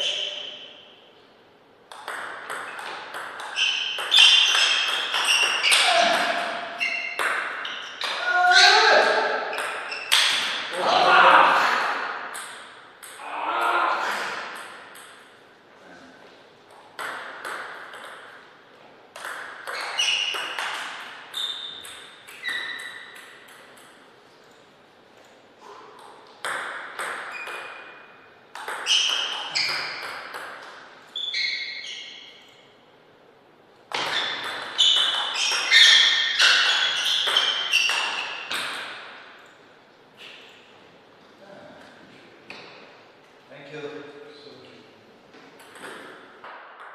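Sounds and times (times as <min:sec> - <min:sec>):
table tennis ball clicking: 0:01.9 - 0:05.6
table tennis ball hits: 0:01.9 - 0:10.8, 0:12.0 - 0:15.4, 0:16.7 - 0:18.5, 0:19.1 - 0:24.1, 0:25.6 - 0:31.0, 0:33.9 - 0:39.3, 0:45.5 - 0:46.9
high-pitched squeaks: 0:03.5 - 0:08.8, 0:09.5 - 0:10.4, 0:19.7 - 0:23.3, 0:31.1 - 0:32.5, 0:34.0 - 0:38.6.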